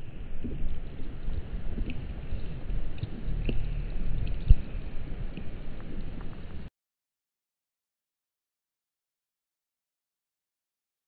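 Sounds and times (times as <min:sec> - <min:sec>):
wind buffeting microphone: 0:00.0 - 0:06.7.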